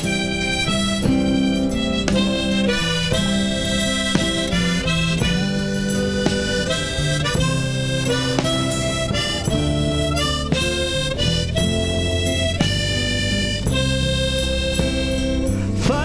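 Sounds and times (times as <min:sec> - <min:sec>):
instrumental music: 0:00.0 - 0:16.0.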